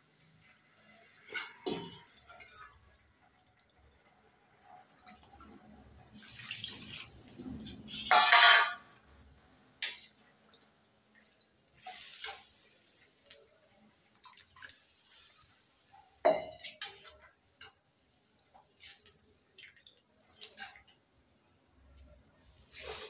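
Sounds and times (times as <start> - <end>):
liquid splashing into pan: 11.3 - 13.5.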